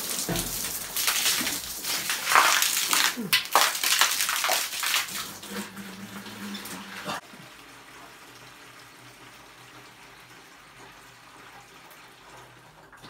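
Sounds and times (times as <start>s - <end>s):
water spraying and splashing: 0.0s - 7.2s.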